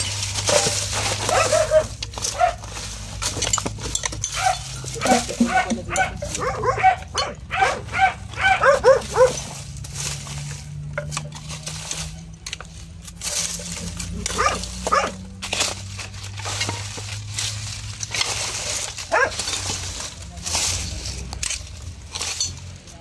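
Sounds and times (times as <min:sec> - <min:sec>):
dog barking: 0:01.2 - 0:02.6, 0:04.3 - 0:09.4, 0:14.3 - 0:15.2, 0:19.1 - 0:19.4.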